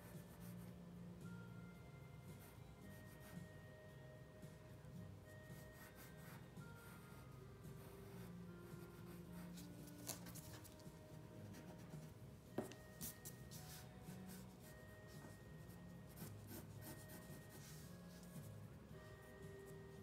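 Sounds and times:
pencil scratching on paper: 0:05.6 - 0:12.2, 0:13.0 - 0:18.6.

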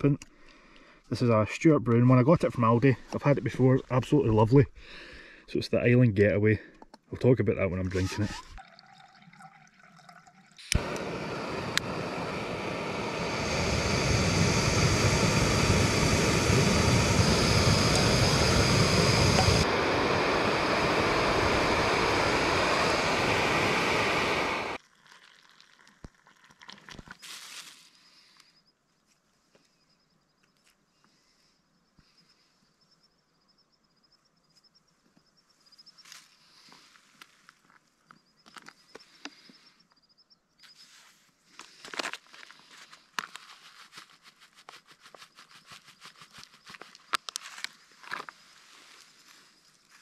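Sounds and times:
gas stove burner hissing: 0:10.6 - 0:24.8.

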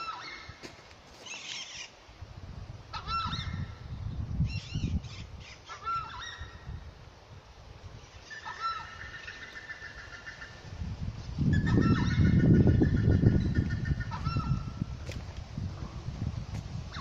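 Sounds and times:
birds honking calls: 0:04.6 - 0:06.7, 0:08.0 - 0:10.8, 0:11.5 - 0:14.9.

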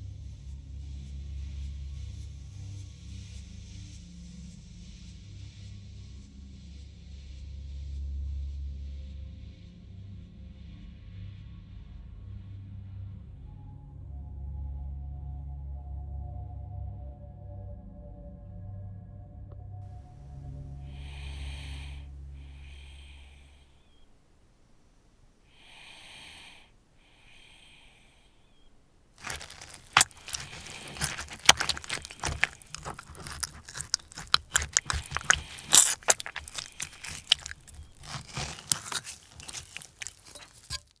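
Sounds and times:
crackling and crinkling clicks: 0:29.2 - 0:41.0.

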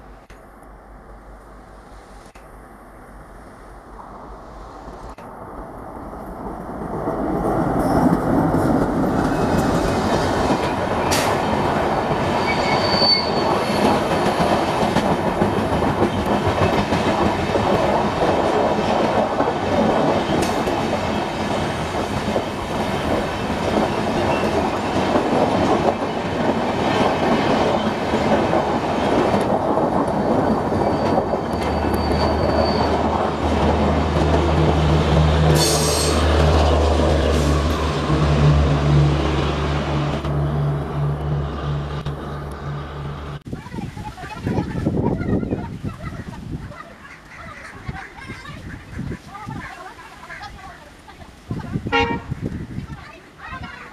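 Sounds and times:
train wheels on rail: 0:00.0 - 0:45.8.

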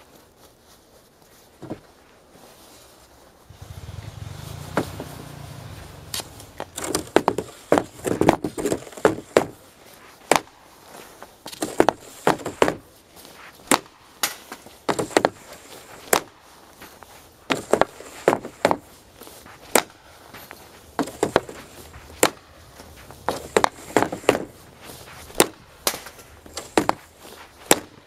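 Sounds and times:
low hum: 0:03.5 - 0:07.0
hockey stick cracking on ice: 0:13.7 - 0:16.3, 0:21.0 - 0:28.0.

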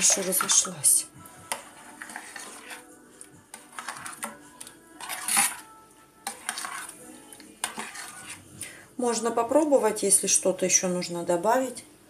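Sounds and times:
metal spoon scraping a saucepan: 0:00.0 - 0:08.6.

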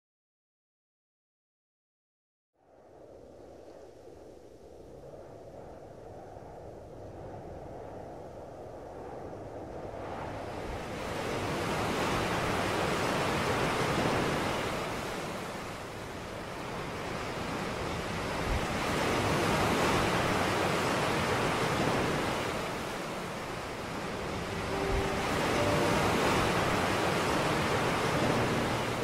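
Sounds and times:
ocean surf washing onto beach: 0:10.3 - 0:29.0.

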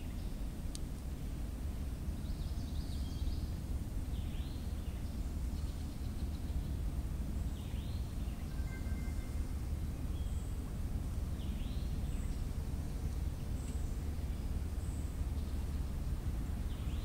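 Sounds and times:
low outdoor rumble: 0:00.0 - 0:17.0
faint high chirps: 0:07.6 - 0:10.6.

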